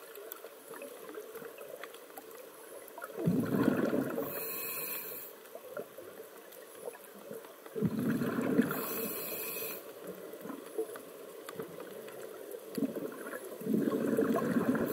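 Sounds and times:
exhaled bubbles gurgling underwater: 0.7s - 4.8s, 5.6s - 14.9s
underwater hiss: 3.2s - 5.5s, 7.8s - 10.4s.

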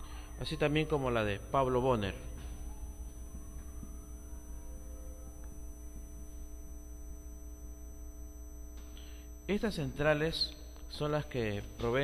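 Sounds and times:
faint high-pitched tones: 0.0s - 12.0s
low electrical hum: 0.0s - 12.0s.

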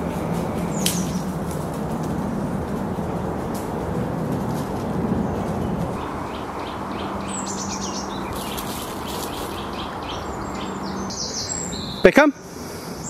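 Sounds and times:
bird trill: 0.0s - 1.4s, 5.2s - 12.3s
songbirds chirping: 0.0s - 13.0s.

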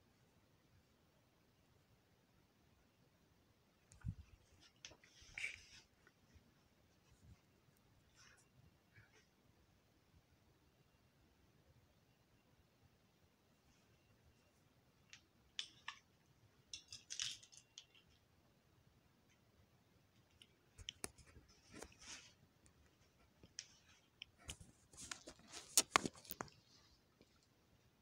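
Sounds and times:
phone handling clicks and rustles: 24.5s - 26.6s.

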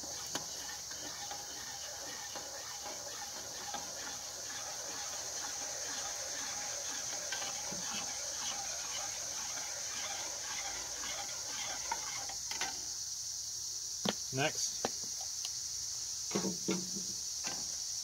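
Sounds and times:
teaspoon stirring in metal pot: 0.0s - 12.3s.

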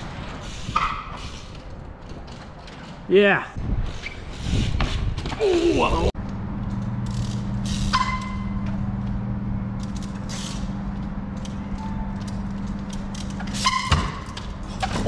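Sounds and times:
low mechanical hum: 6.2s - 14.9s.

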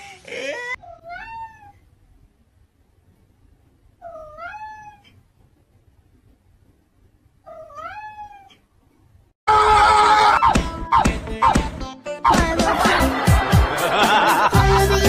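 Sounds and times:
cat meowing: 0.8s - 1.8s, 4.0s - 5.2s, 7.5s - 8.6s
loud music: 10.6s - 15.0s.

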